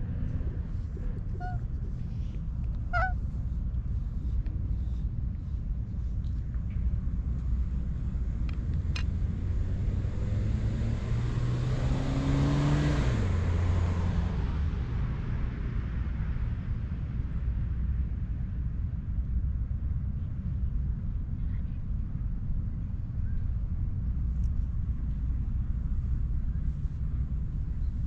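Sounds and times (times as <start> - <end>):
motor vehicle passing by: 0.0 - 2.2, 2.9 - 3.2, 9.0 - 15.2
steady low rumble: 0.0 - 11.7, 13.2 - 28.0.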